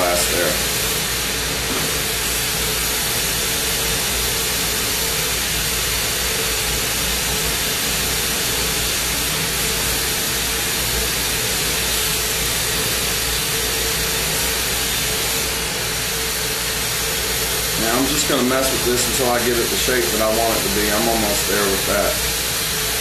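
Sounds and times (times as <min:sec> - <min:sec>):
torch burning with steady hiss: 0:00.0 - 0:23.0.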